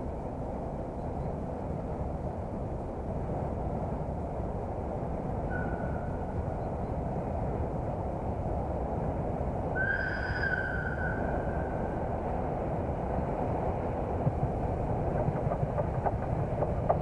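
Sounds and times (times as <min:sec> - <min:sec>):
locomotive whistle: 0:09.8 - 0:11.8
steady low rumble: 0:10.8 - 0:17.0.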